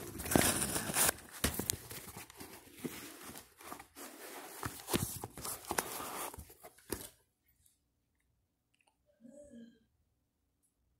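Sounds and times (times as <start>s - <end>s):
tissue paper crinkling: 0.0s - 6.9s.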